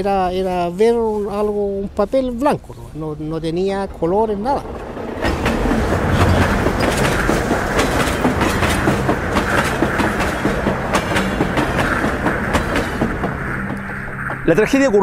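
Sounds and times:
freight train rumble: 0.0 - 15.0
train wheels clattering over rails: 4.2 - 14.8.

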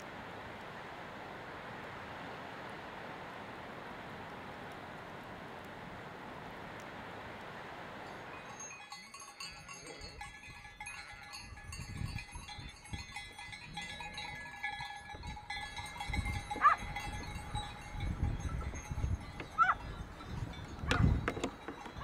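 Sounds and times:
livestock bells ringing: 8.0 - 22.0.

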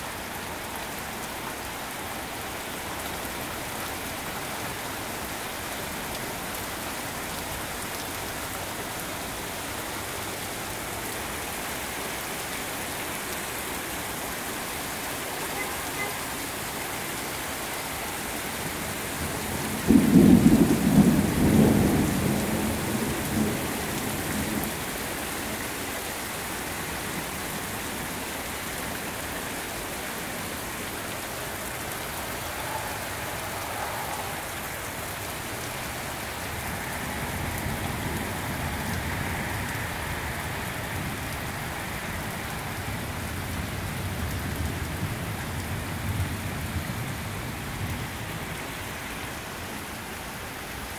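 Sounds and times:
heavy rain pouring: 0.0 - 50.9
thunder clap and rumble: 19.6 - 24.7
faint roll of thunder: 19.9 - 23.6.

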